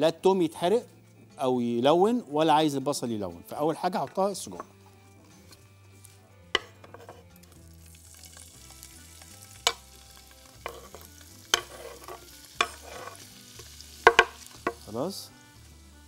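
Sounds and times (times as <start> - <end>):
sausage sizzling in hot oil: 5.1 - 16.0
knocks on wooden cutting board: 14.1 - 14.8.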